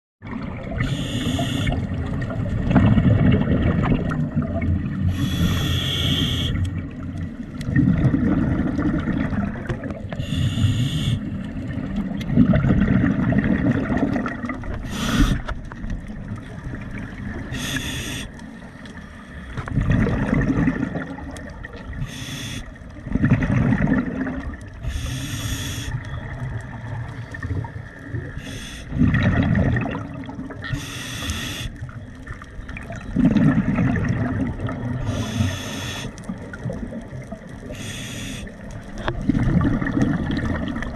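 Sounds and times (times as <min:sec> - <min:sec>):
exhaled bubbles rumbling underwater: 0:00.2 - 0:40.9
scuba regulator inhale hiss: 0:00.8 - 0:01.8, 0:05.1 - 0:06.6, 0:10.2 - 0:11.2, 0:14.8 - 0:15.5, 0:17.5 - 0:18.4, 0:22.0 - 0:22.7, 0:24.8 - 0:26.0, 0:28.3 - 0:28.9, 0:30.7 - 0:31.8, 0:35.1 - 0:36.2, 0:37.7 - 0:38.5.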